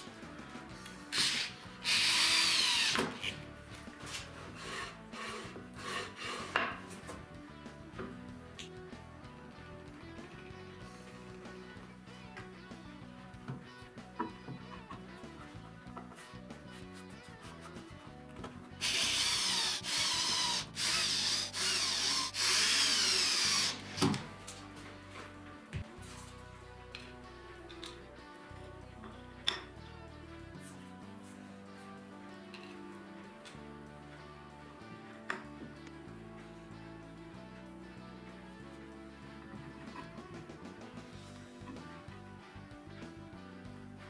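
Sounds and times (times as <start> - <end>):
light background music: 0.0 - 44.0
cordless drill whining: 1.1 - 3.4, 18.8 - 24.2.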